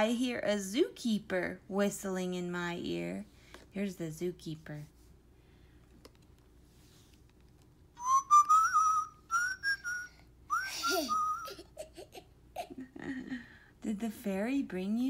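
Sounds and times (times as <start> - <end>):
electronic whistled tune: 8.0 - 11.5.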